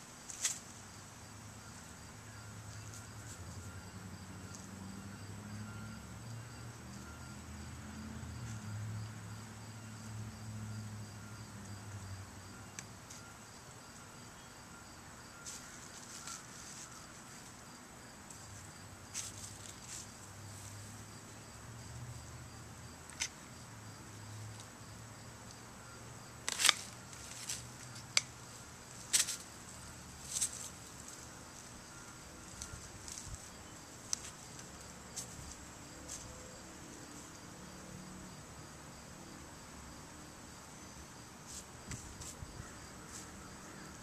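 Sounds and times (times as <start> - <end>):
insects chirping: 0.0 - 44.0
dry vines snapping and rustling: 26.5 - 28.3.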